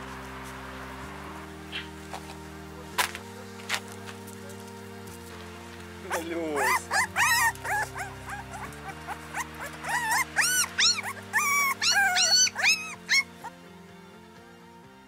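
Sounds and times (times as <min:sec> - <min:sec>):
background music: 0:00.0 - 0:15.0
puppies whining and yelping: 0:06.1 - 0:13.5.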